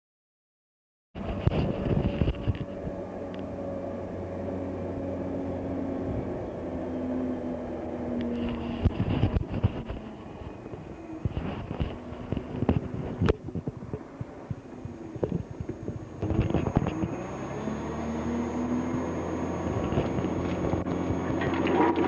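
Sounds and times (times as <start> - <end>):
diesel truck engine running: 14.1 - 22.0.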